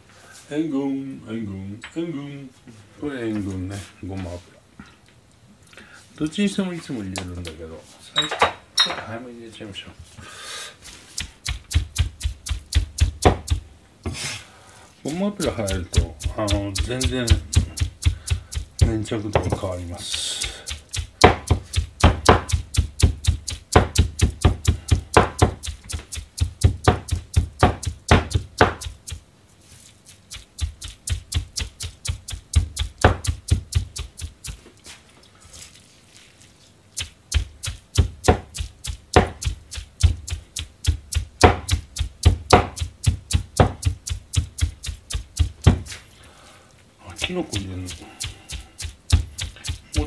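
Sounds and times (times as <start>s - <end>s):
cleaver chopping on cutting board: 11.1s - 13.6s, 15.4s - 29.2s, 30.6s - 34.6s, 37.0s - 46.0s, 47.5s - 50.0s.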